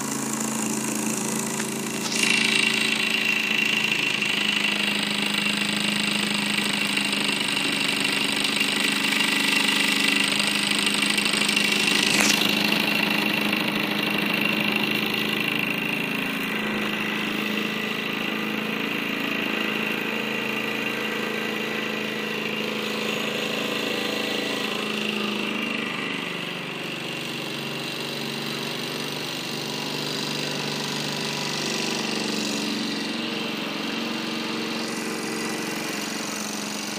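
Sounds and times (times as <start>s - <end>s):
toy steam engine chuffing: 0.0s - 36.9s
sharp click: 11.8s - 12.8s.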